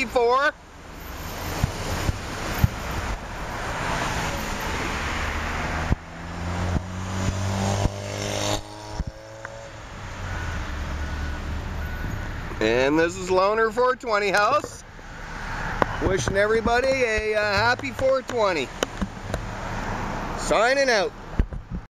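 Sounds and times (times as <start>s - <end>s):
cars passing close by: 0.2s - 21.8s
sharp knocks: 16.2s - 19.5s.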